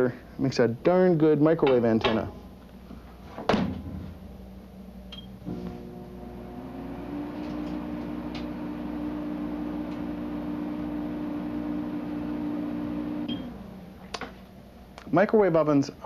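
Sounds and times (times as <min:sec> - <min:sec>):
microwave oven humming: 0:04.2 - 0:14.9.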